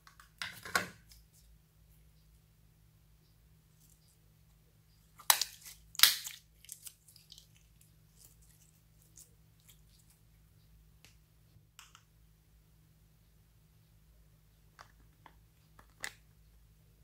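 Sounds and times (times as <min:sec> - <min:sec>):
slime crackling and popping: 0:05.2 - 0:07.8.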